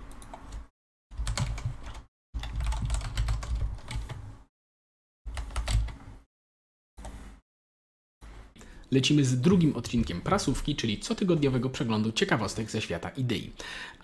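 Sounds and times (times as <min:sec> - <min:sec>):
computer keyboard typing: 0:01.2 - 0:04.2, 0:05.3 - 0:06.0.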